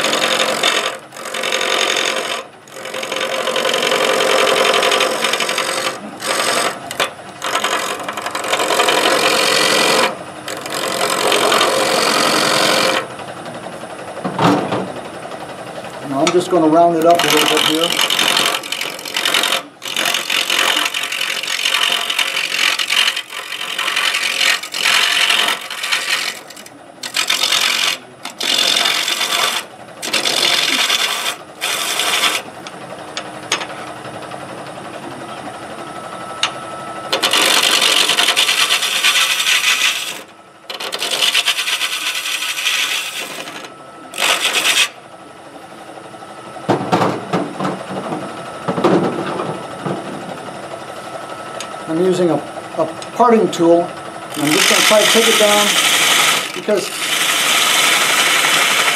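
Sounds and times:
gouge scraping wood on lathe: 0.0s - 13.1s, 16.1s - 32.5s, 37.1s - 45.0s, 53.1s - 58.9s
lathe running: 0.0s - 58.9s.

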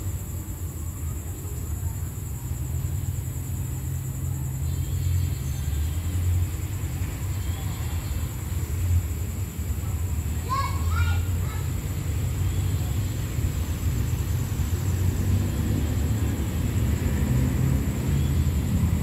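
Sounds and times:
diesel locomotive rumble: 0.0s - 19.0s.

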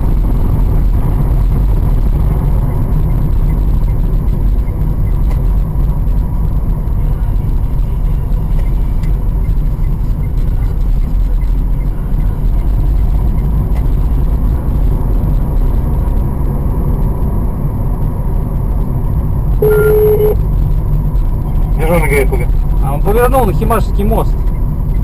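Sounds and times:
car engine and tyres rumbling: 0.0s - 25.0s
short electronic beep: 19.6s - 20.4s.

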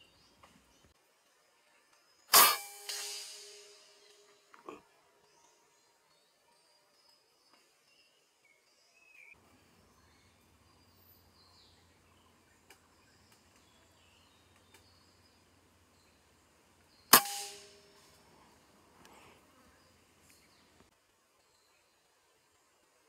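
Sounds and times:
air rifle shot: 2.3s - 4.2s, 17.1s - 17.9s.

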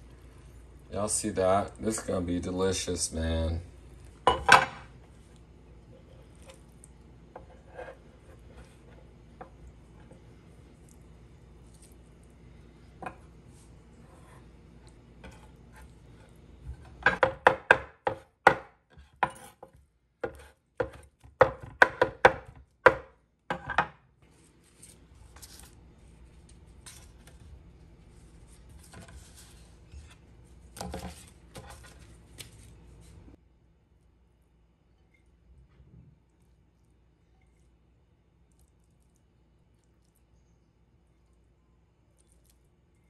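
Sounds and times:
soft brushing: 24.2s - 33.4s.

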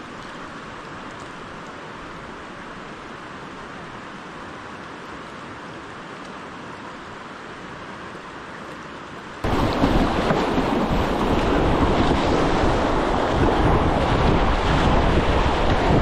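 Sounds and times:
rushing river water: 0.0s - 16.0s
wind buffeting microphone: 9.4s - 16.0s.

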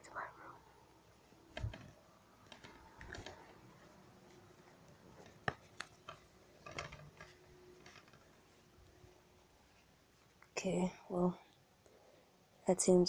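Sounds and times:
rustling of things handled: 1.2s - 10.9s
faint clicks and taps: 1.5s - 10.6s.

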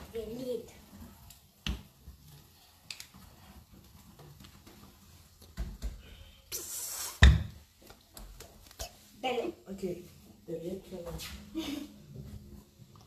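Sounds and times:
brief hiss: 6.5s - 7.3s.

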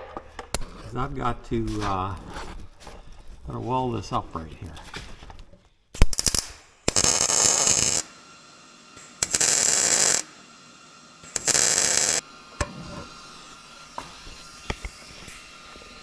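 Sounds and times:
welding arc crackling: 6.0s - 12.2s.

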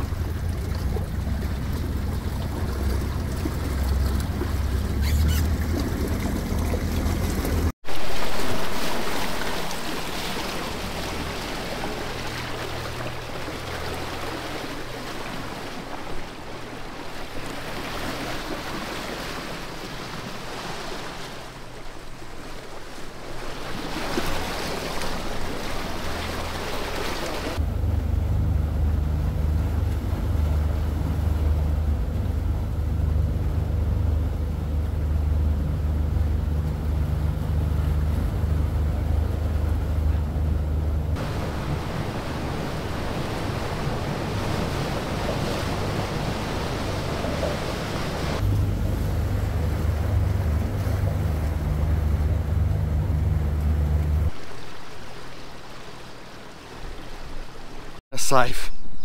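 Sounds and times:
water rushing past hull: 0.0s - 58.7s
wind: 0.0s - 59.0s
heavy low rumble: 48.4s - 54.6s.

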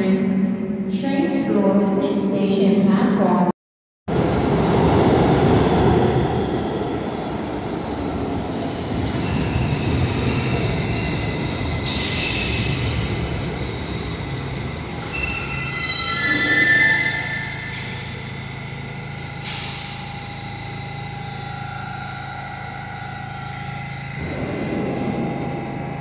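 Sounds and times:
train wheels rumbling on rail: 4.1s - 26.0s
high wheel squeals: 9.1s - 20.0s.

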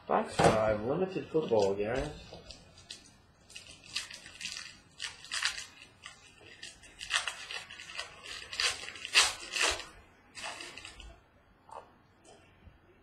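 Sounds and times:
packaging crinkling: 1.4s - 11.2s.

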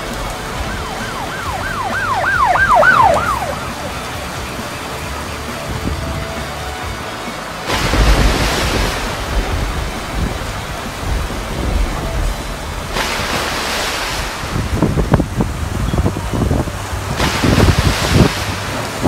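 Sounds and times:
heavy rain: 0.0s - 19.0s
wind gusting: 0.0s - 19.0s
wind buffeting microphone: 7.8s - 19.0s.

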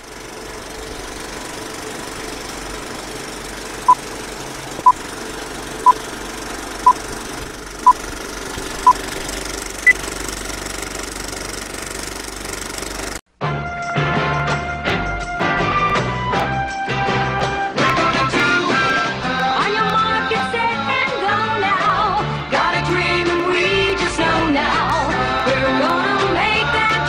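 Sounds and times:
film projector clatter: 0.0s - 13.2s.

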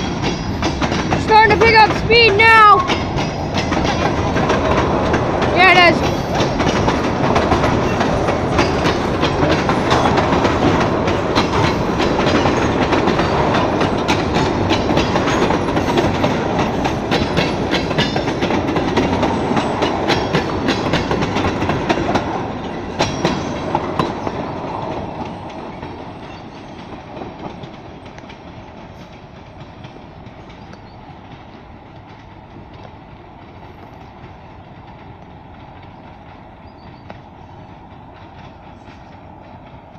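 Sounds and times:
freight train rumbling past: 0.0s - 39.9s
train wheels clicking over rail joints: 0.0s - 39.9s.

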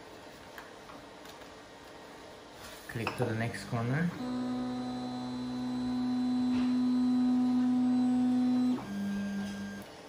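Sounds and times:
stepper motors whining: 4.1s - 9.8s.

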